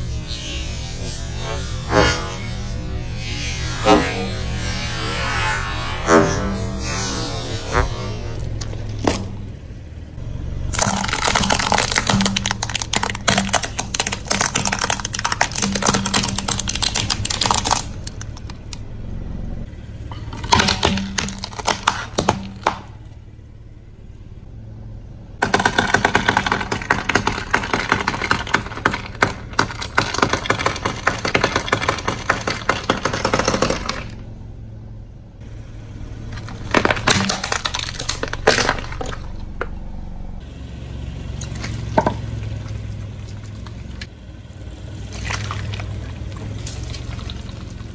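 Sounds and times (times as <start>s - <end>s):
plastic cracking under car tyre: 8.5s - 9.4s, 10.7s - 18.8s, 20.1s - 23.0s, 25.4s - 34.2s, 36.3s - 39.7s
baubles crackling and shattering: 10.7s - 18.6s, 20.2s - 22.8s, 36.4s - 39.6s, 45.1s - 47.9s.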